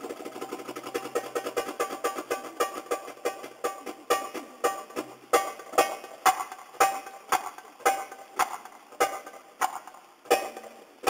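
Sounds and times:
percussion strikes with ringing tone: 0:00.9 - 0:10.8.

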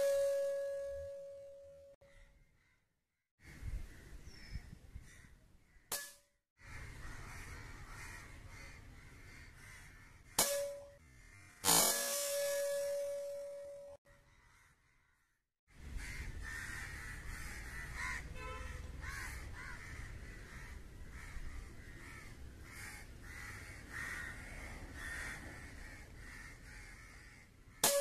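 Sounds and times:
crows cawing: 0:02.0 - 0:02.8, 0:05.0 - 0:05.9, 0:06.6 - 0:11.8, 0:14.1 - 0:28.0.

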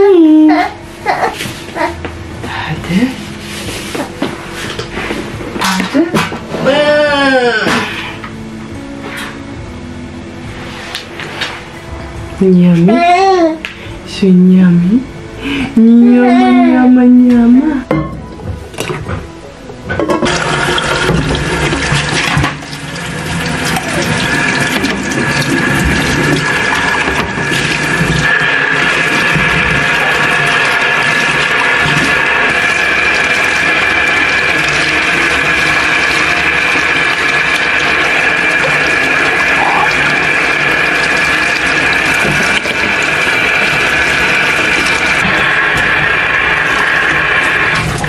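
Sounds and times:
tap running into a sink: 0:20.0 - 0:48.0.

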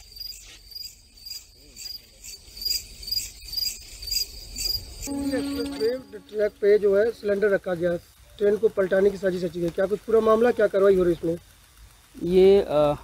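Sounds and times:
crickets chirping: 0:00.0 - 0:13.0
man speaking: 0:05.1 - 0:11.3.

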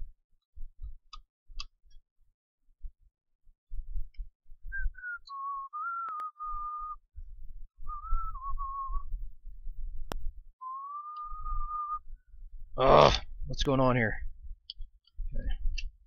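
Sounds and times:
person whistling a tune: 0:04.7 - 0:07.0, 0:07.8 - 0:09.2, 0:10.6 - 0:12.1.

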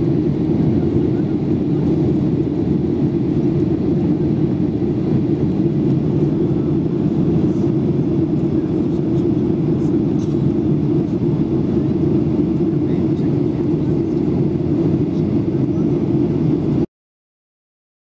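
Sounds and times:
airplane cabin rumble: 0:00.0 - 0:16.9.

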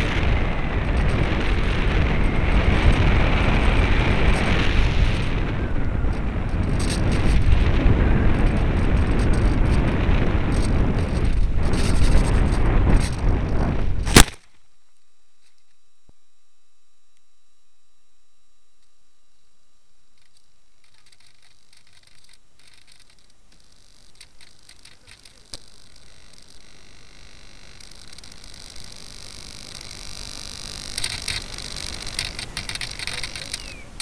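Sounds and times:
wind buffeting camera: 0:00.0 - 0:14.4, 0:20.2 - 0:34.0
model plane crashing into tree: 0:00.0 - 0:14.6
crackles: 0:00.0 - 0:34.0.

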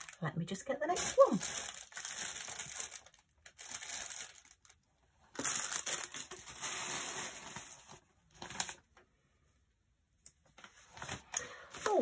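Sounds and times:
plastic packaging crinkling: 0:00.0 - 0:00.3, 0:00.9 - 0:09.0.

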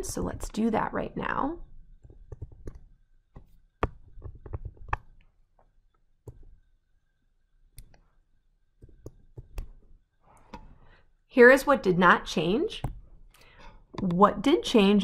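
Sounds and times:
stylus tapping on tablet screen: 0:02.0 - 0:05.3, 0:06.2 - 0:06.6, 0:08.8 - 0:10.8.

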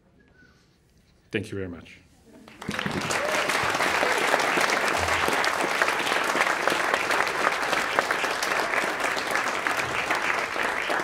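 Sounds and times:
audience clapping: 0:02.4 - 0:11.0.

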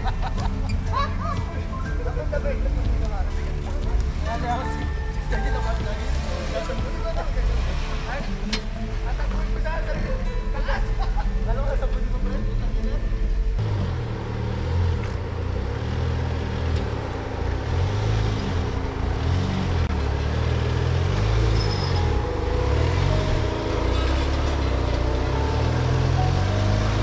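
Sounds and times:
engine revving at low speed: 0:05.9 - 0:09.3, 0:13.6 - 0:27.0.

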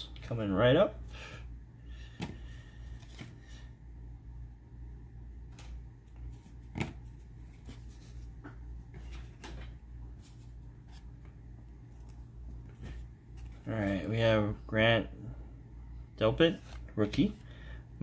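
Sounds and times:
steady low hum: 0:00.0 - 0:18.0
trading cards rustling: 0:06.1 - 0:11.2.

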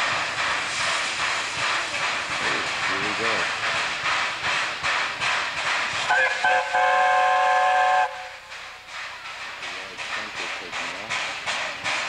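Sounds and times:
steam locomotive hissing steam: 0:00.0 - 0:12.0
steam whistle: 0:06.1 - 0:08.4.

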